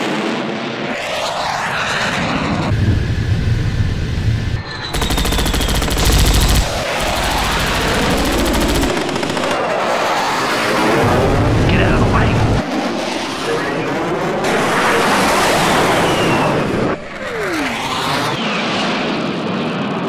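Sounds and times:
jet aircraft whooshing past: 0:00.1 - 0:20.0
machine-gun fire: 0:04.9 - 0:09.8.

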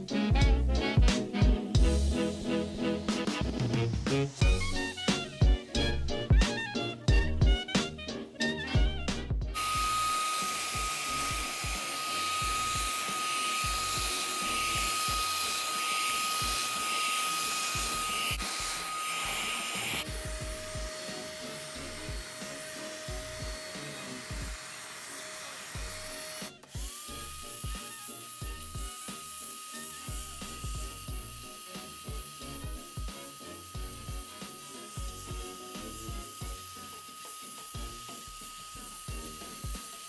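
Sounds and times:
handheld vacuum cleaner whine: 0:09.5 - 0:40.0.

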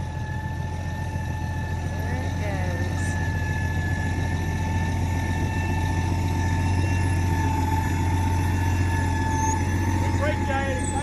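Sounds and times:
heavy engine idling: 0:00.0 - 0:11.0.

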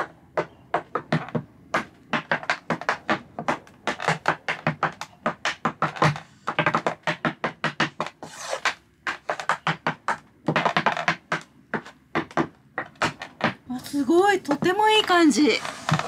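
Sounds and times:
tap shoes tapping on wood: 0:00.0 - 0:16.0
tap shoe scraping slide: 0:02.2 - 0:11.2, 0:15.6 - 0:16.0.

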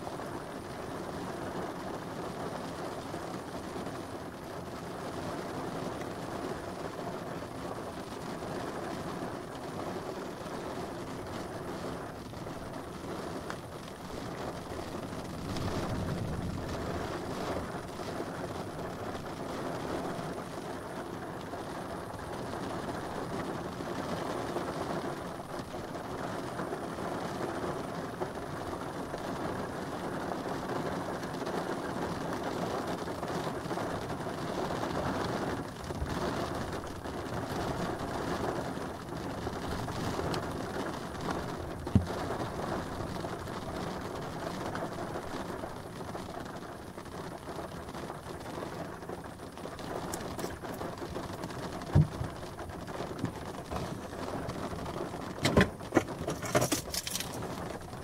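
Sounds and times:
rain on glass: 0:00.0 - 0:58.0
low rumble of thunder: 0:13.9 - 0:20.1.

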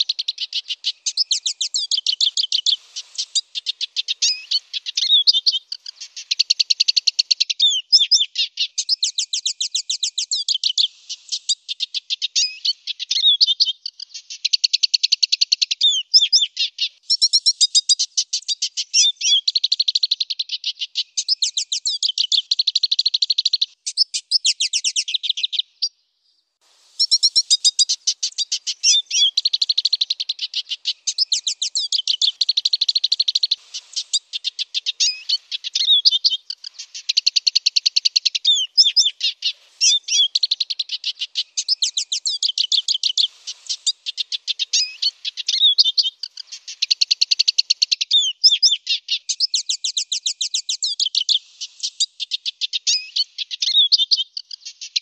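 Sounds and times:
bird singing twittering trills: 0:00.0 - 0:26.0, 0:27.0 - 0:52.0.

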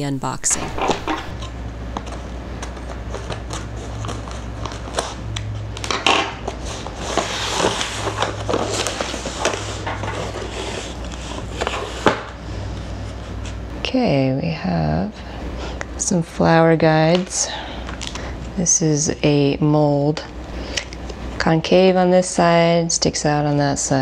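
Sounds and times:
steady low hum: 0:00.0 - 0:24.0
cardboard scraping and rustling: 0:00.6 - 0:05.2, 0:05.8 - 0:12.4.

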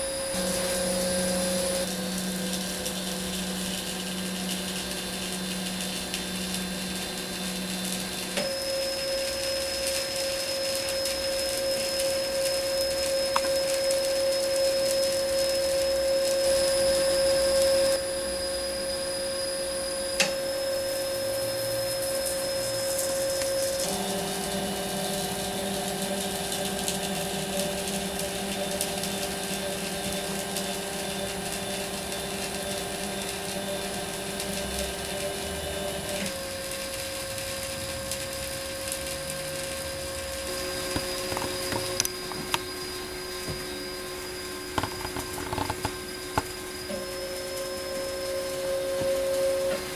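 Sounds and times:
stepper motors whining: 0:39.1 - 0:49.9.

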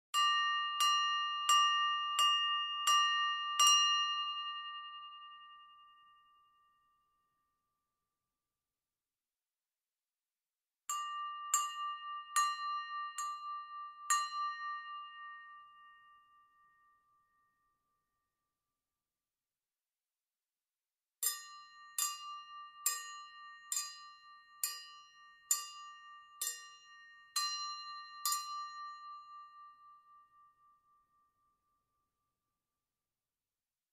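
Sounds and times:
silverware tapping a glass: 0:10.9 - 0:15.7, 0:21.2 - 0:29.4.

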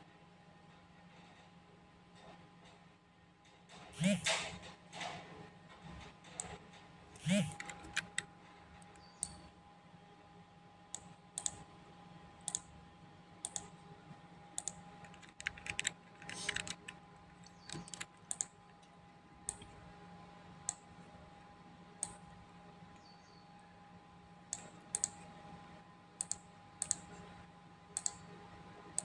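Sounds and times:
faint electrical hum: 0:00.0 - 0:29.0
computer mouse clicking: 0:07.2 - 0:09.4, 0:10.9 - 0:11.6, 0:12.4 - 0:12.7, 0:13.4 - 0:13.7, 0:14.6 - 0:18.9, 0:22.0 - 0:22.2, 0:24.5 - 0:25.2, 0:26.2 - 0:27.2, 0:28.0 - 0:28.3.

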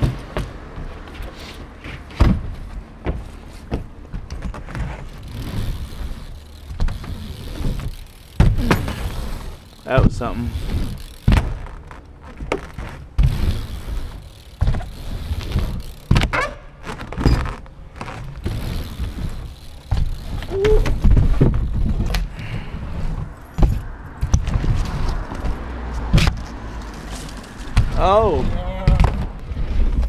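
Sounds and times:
wheels thudding on wood: 0:00.0 - 0:30.0
tyres rumbling on plywood: 0:01.6 - 0:26.4.

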